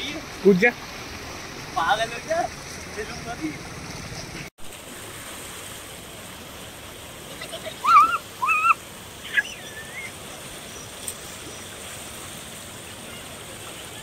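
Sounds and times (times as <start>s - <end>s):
river water rushing: 0.0s - 14.0s
high arching calls: 7.6s - 11.6s.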